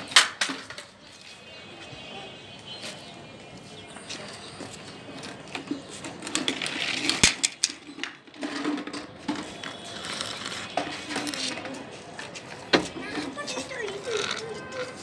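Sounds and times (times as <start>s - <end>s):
plastic toy cars clattering on concrete: 0.0s - 1.4s, 4.6s - 15.0s.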